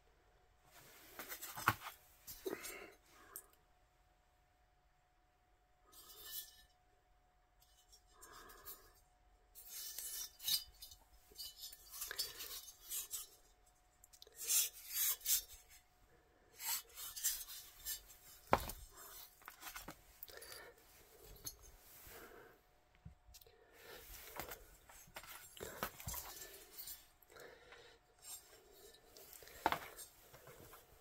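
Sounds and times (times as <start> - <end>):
metal rubbing and scraping: 16.6 - 20.0.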